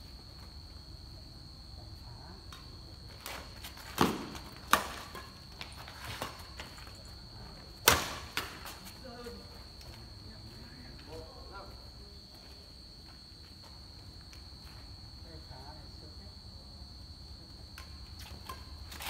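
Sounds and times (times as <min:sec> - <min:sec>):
insects chirring: 0:00.0 - 0:19.0
footsteps and shoe scuffs on concrete: 0:08.6 - 0:15.0.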